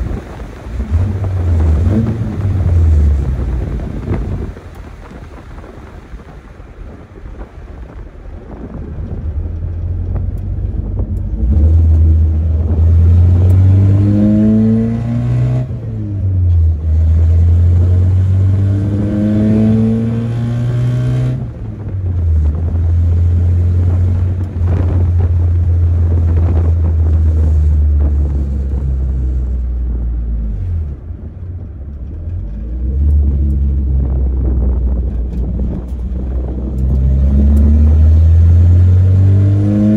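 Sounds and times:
pickup engine accelerating hard: 0:00.0 - 0:39.9
gear shifts: 0:21.4 - 0:39.9.

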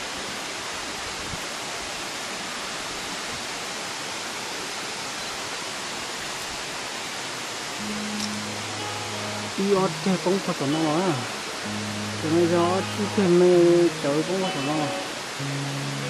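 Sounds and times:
waterfall rushing: 0:00.0 - 0:16.0.

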